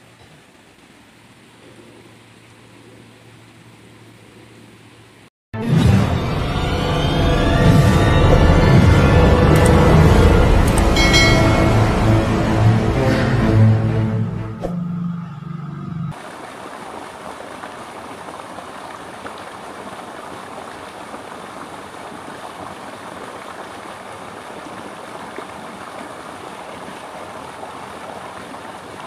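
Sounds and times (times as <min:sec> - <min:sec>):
intro music low tone: 0:06.0 - 0:16.1
river water rippling over stones: 0:16.1 - 0:29.0.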